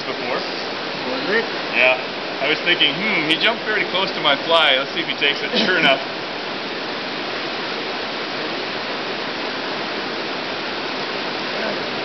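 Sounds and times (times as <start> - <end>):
river water flowing: 0.0 - 12.0.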